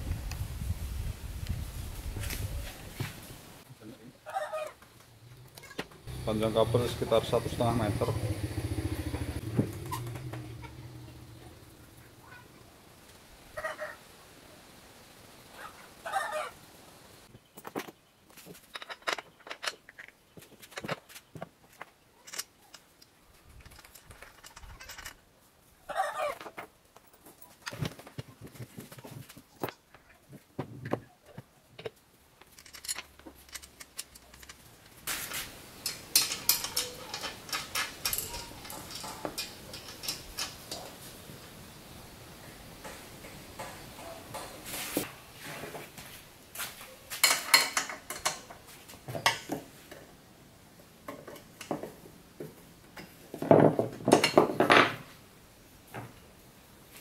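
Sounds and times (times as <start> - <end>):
clicks knocks and clattering: 35.8 - 40.9.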